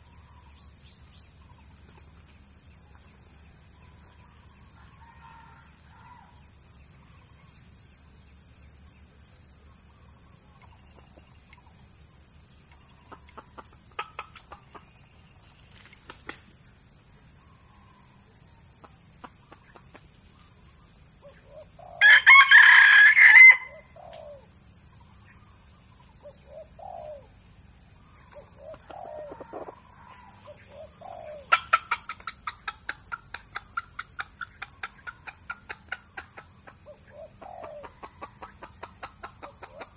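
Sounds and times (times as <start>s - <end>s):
rooster crowing: 4.7s - 6.4s, 22.0s - 24.0s, 28.8s - 30.6s.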